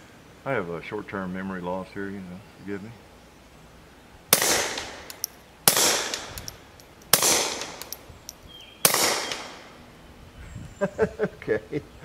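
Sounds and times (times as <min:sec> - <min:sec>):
suppressed pistol shots: 0:04.3 - 0:08.0.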